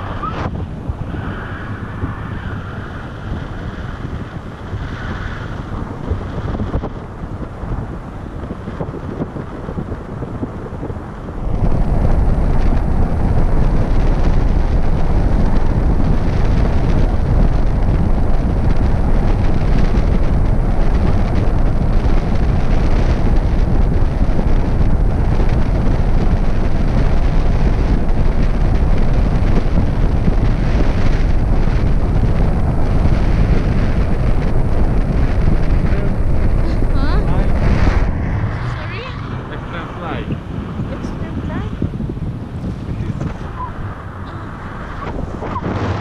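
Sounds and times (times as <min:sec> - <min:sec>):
wind buffeting microphone: 0:00.0 - 0:46.0.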